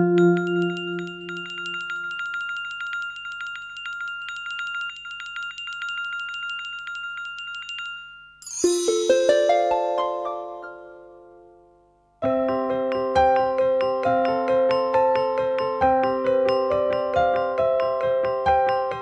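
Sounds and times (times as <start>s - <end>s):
small handbell ringing rapidly: 0.2s - 10.0s.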